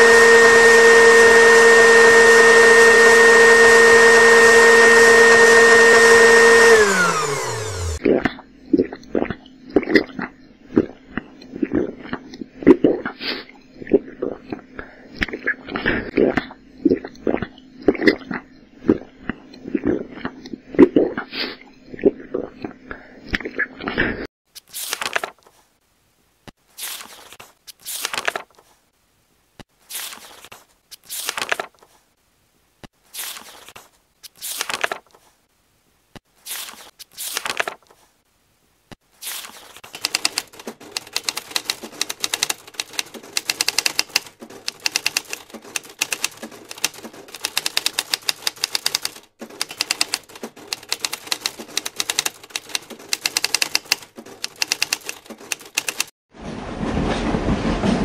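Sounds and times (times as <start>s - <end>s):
book pages turning: 24.5s - 25.8s, 26.6s - 28.9s, 29.7s - 32.1s, 32.9s - 35.4s, 36.2s - 38.2s, 39.0s - 56.1s
typewriter typing quickly: 39.8s - 56.1s.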